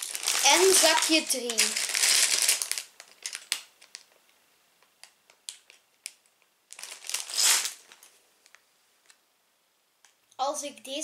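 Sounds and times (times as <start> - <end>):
plastic bag crinkling: 0.0 - 4.2, 5.5 - 8.6.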